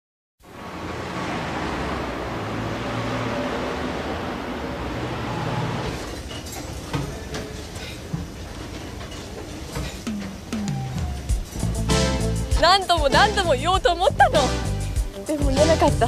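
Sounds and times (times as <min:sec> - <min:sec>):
vehicle rumble and hiss: 0:00.4 - 0:06.2.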